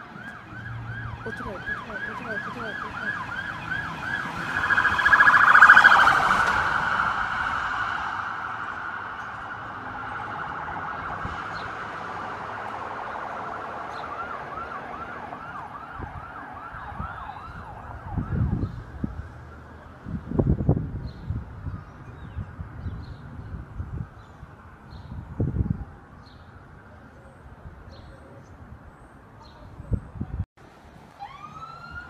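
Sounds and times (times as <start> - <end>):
police car siren: 0.0 - 20.4, 31.2 - 32.0.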